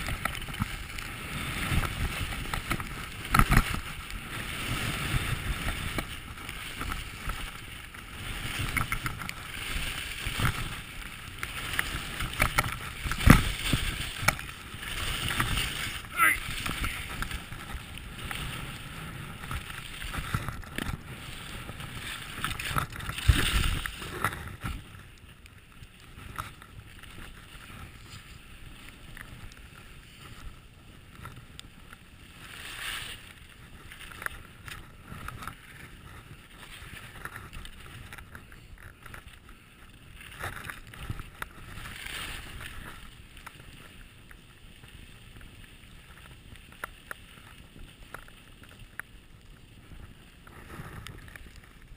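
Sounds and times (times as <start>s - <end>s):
wind on microphone: 0.0s - 25.1s
skis scraping on packed snow: 0.0s - 51.9s.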